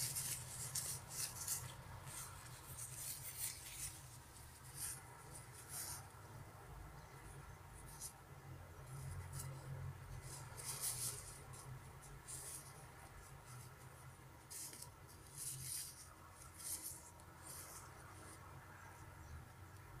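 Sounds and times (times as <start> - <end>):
jacket fabric rustling: 0.0 - 6.2, 8.8 - 18.4.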